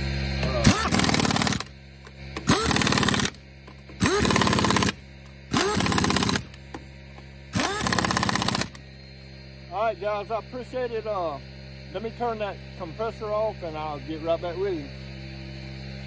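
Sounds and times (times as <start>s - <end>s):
pneumatic impact wrench: 0.4s - 6.8s, 7.5s - 8.8s.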